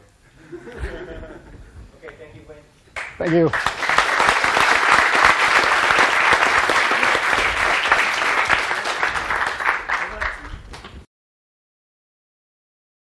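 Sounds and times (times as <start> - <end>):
audience applauding: 3.0 - 11.0.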